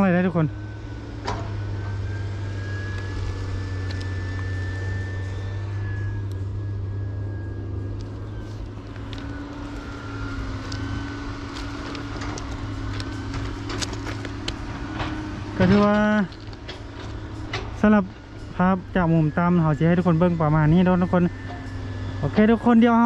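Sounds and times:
engine humming with high whine: 0.0 - 23.0.

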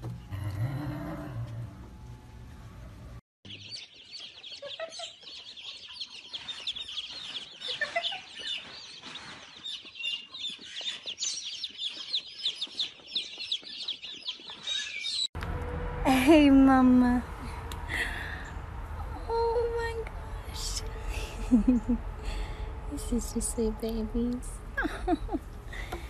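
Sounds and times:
baby chicks cheeping: 3.5 - 15.3.

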